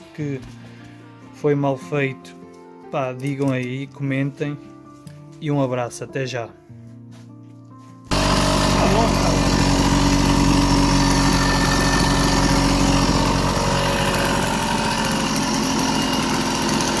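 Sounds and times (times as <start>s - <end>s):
moped engine running: 8.1s - 17.0s.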